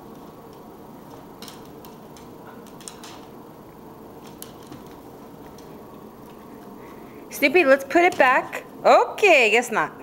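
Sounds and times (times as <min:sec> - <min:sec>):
steady low hum: 0:00.0 - 0:10.0
dog claws clicking on hardwood: 0:00.1 - 0:03.4, 0:04.2 - 0:06.7.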